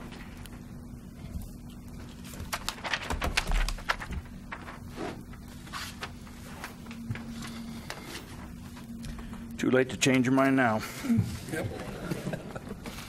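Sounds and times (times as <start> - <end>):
steady low hum: 0.0 - 13.0
paper rustling: 1.4 - 9.3.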